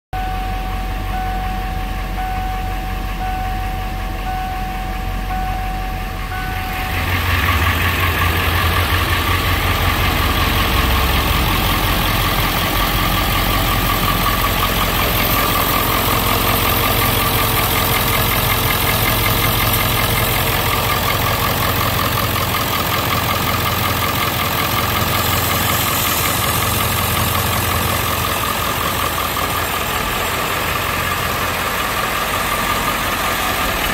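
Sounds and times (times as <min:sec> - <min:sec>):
steady high electronic tone: 0:00.2 - 0:22.8
diesel engine idling: 0:00.2 - 0:33.9.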